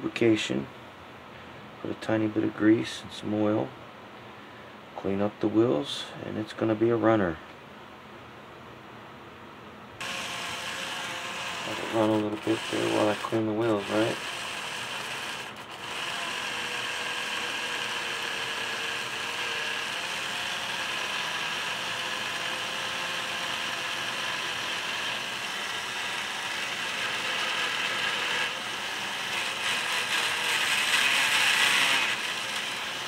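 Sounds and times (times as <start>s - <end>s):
model motor gear whirr: 10.0s - 33.0s.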